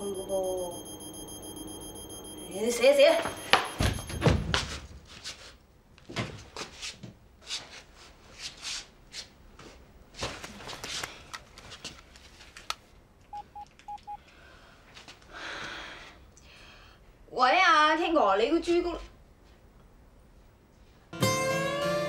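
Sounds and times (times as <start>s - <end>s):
phone keypad beeps: 0.0s - 4.4s, 13.3s - 14.2s.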